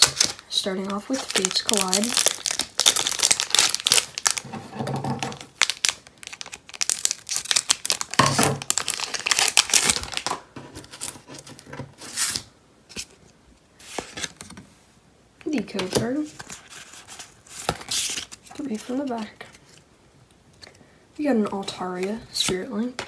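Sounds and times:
foil wrapper crinkling: 0:00.0 - 0:04.5, 0:05.1 - 0:12.4.

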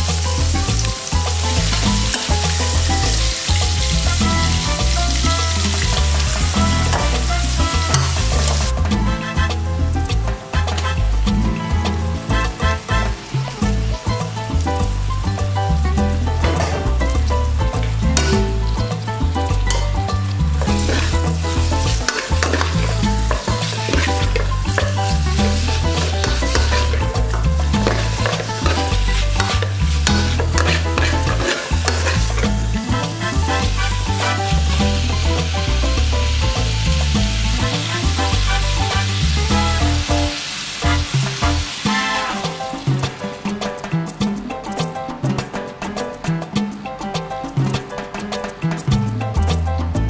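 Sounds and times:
onion and garlic sizzling in oil: 0:00.0 - 0:11.0, 0:11.7 - 0:43.5
background music: 0:00.0 - 0:50.0
spatula stirring in metal pot: 0:20.6 - 0:35.0.

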